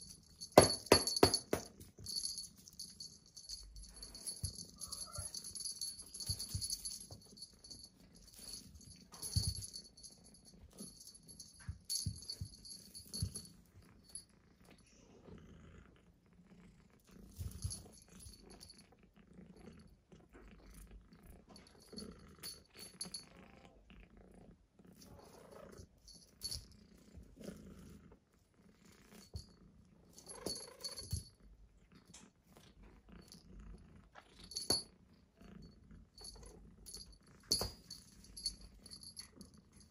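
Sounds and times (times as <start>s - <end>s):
cat toy rattling and rustling: 0.0s - 14.2s, 17.2s - 18.8s, 30.1s - 31.4s, 36.2s - 39.9s.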